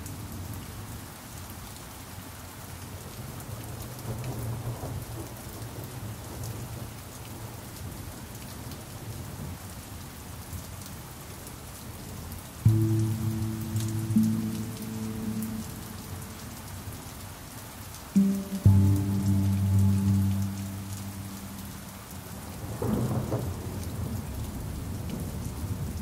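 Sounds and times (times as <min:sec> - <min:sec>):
steady rainfall: 0:00.0 - 0:26.0.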